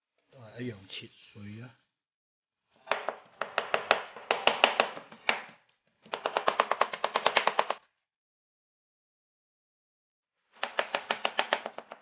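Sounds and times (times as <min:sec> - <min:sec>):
knife chopping on cutting board: 0:02.9 - 0:07.8, 0:10.6 - 0:12.0.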